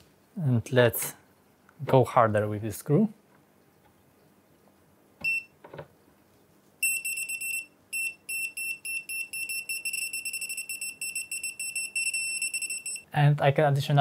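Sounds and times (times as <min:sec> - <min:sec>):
screwdriver buzzer beeping: 0:06.8 - 0:13.0.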